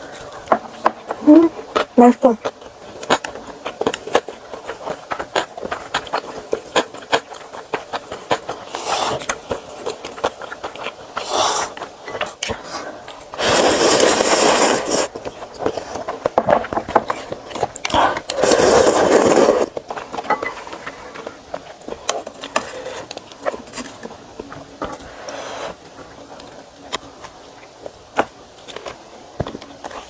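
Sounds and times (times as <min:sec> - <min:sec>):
chewing: 0:00.1 - 0:27.9
slurping noodles: 0:08.2 - 0:09.3, 0:11.1 - 0:11.8, 0:12.5 - 0:16.0, 0:17.9 - 0:19.8, 0:25.0 - 0:25.8.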